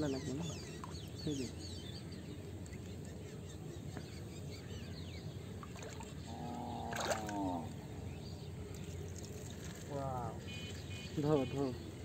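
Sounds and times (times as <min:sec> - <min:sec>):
water trickling and sloshing: 0:00.2 - 0:01.3, 0:05.4 - 0:11.2.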